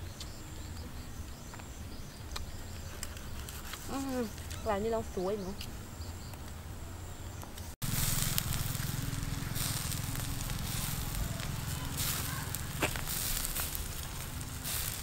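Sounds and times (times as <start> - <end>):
charcoal embers crackling: 2.3 - 6.6, 7.5 - 15.0
sharp pops: 7.5 - 15.0
meat juices sizzling: 7.8 - 15.0.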